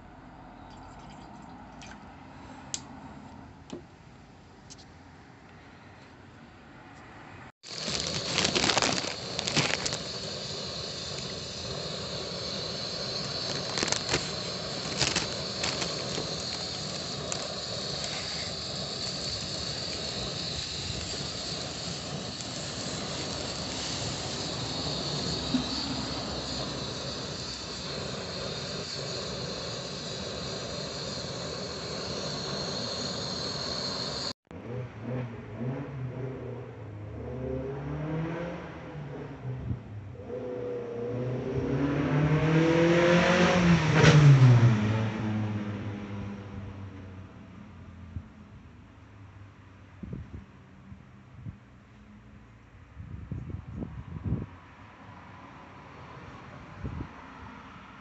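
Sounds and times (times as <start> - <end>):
gas burner hissing: 7.6 - 34.4.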